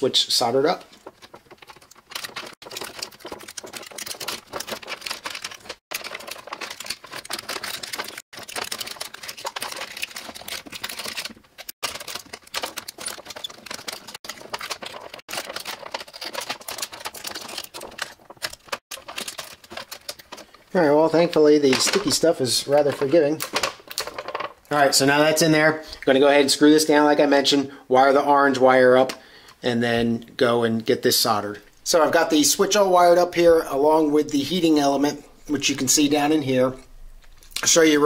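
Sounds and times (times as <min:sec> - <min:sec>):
small plastic clicks and rustles: 0:00.8 - 0:24.6.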